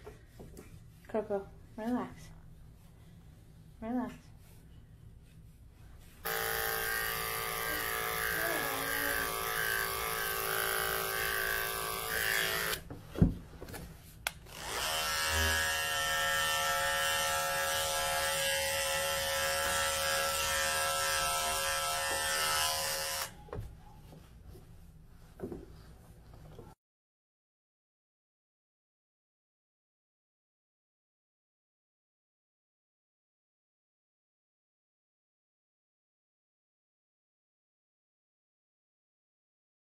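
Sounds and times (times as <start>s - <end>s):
dog clipper running: 6.2s - 12.8s, 14.5s - 23.4s.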